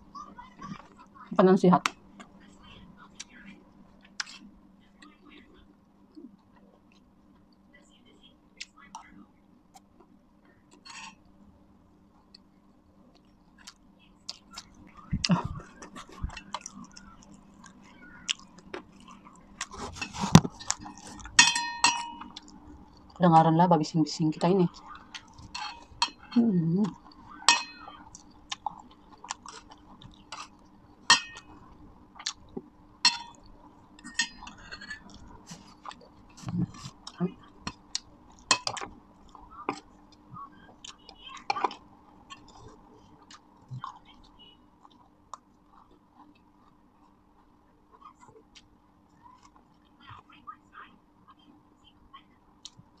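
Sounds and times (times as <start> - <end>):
soft chewing: 0.0 - 23.2, 24.3 - 53.0
cutlery clinking on metal plate: 10.8 - 11.2, 20.0 - 22.3, 25.5 - 26.4, 27.4 - 28.0, 31.1 - 31.6, 33.0 - 35.2.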